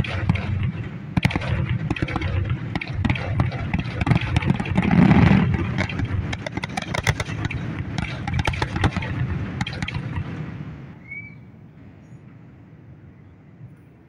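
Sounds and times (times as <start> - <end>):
firework crackles and pops: 0.0 - 10.9.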